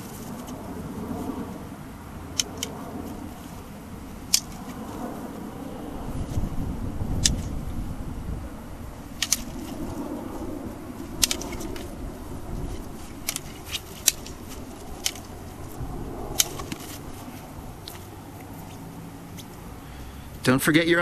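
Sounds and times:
wind rumble on microphone: 0.0 - 21.0
sticks clacking together: 11.2 - 11.9, 13.2 - 15.4.

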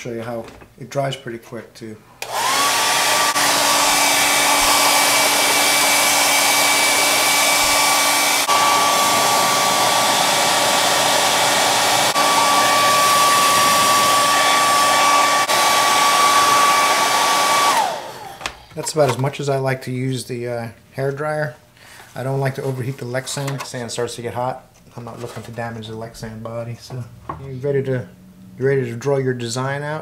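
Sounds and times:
hair dryer blowing: 2.2 - 18.6.

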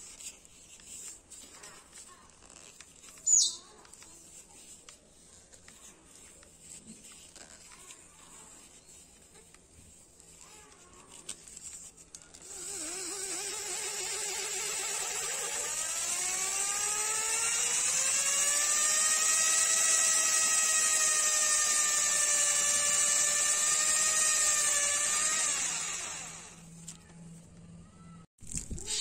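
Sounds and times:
small electric motor whine: 12.3 - 27.1.

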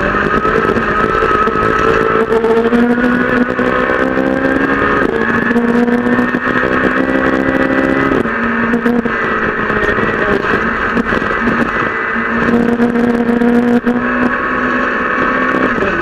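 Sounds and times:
car engine accelerating hard: 0.0 - 16.0.

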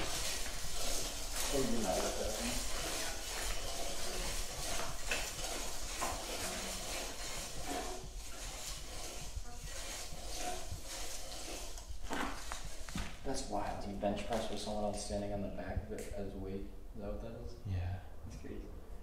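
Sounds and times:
exercise bike rattling and clicking: 0.0 - 13.6.

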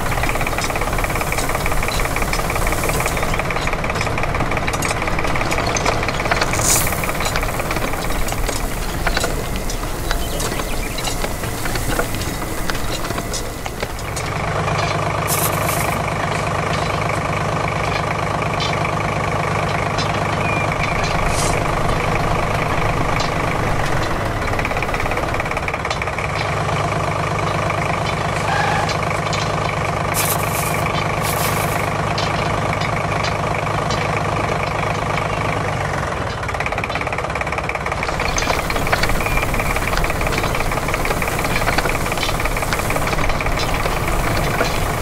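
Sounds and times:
machine engine-like drone: 0.0 - 45.0.

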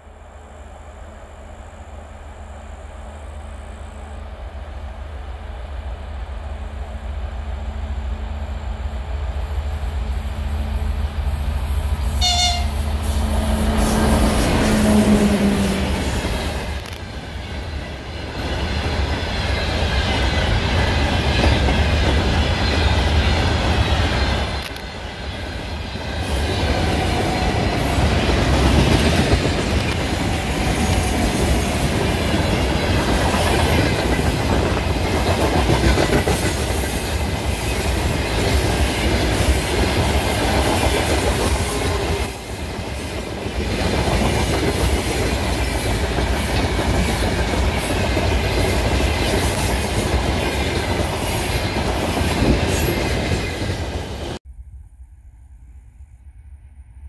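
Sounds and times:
diesel locomotive engine drone: 0.0 - 57.0
train horn toot: 12.1 - 16.0
train wheels clattering on rail: 13.4 - 54.4.

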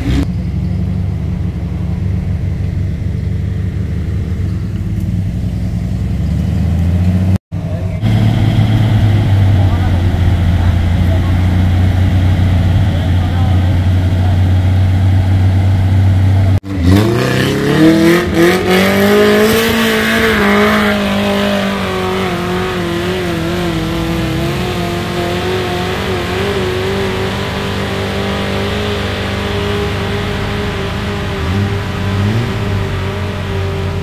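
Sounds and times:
engine revving: 0.0 - 34.0.

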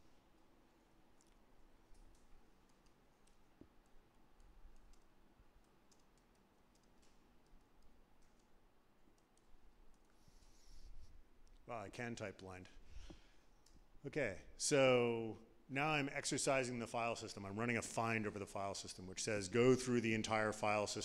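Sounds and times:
laptop keyboard clicks: 1.2 - 10.2.

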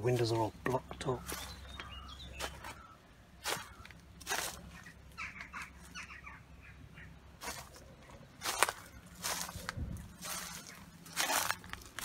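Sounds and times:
bird calling: 0.0 - 12.0
footsteps through dry leaves: 1.1 - 6.2, 7.4 - 12.0.

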